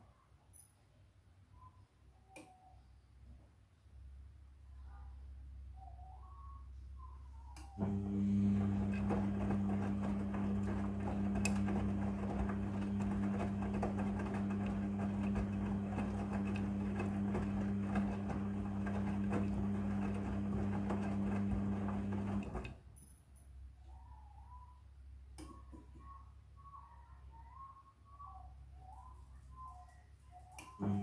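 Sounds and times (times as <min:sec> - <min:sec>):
washing machine motor hum: 0:07.7 - 0:22.8, 0:30.6 - 0:31.0.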